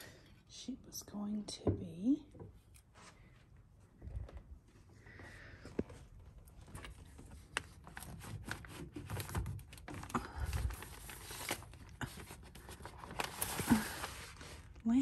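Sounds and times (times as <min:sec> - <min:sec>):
paper pages rustling: 0:06.5 - 0:14.8.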